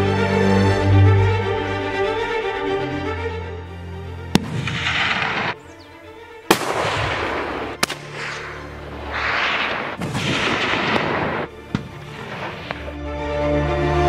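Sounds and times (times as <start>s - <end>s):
background music: 0.0s - 14.0s
sharp bangs: 4.3s - 5.7s, 6.5s - 13.0s.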